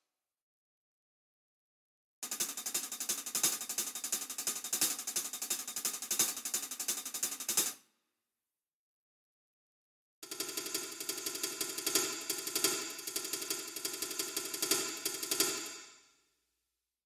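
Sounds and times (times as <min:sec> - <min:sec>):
fast hi-hat strokes: 0:02.2 - 0:07.7, 0:10.3 - 0:16.0.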